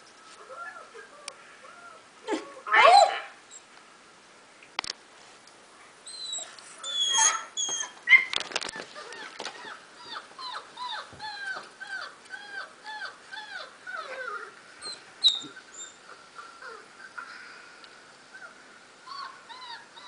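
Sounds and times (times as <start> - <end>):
puppies whimpering: 6.1 - 17.2, 18.3 - 20.0.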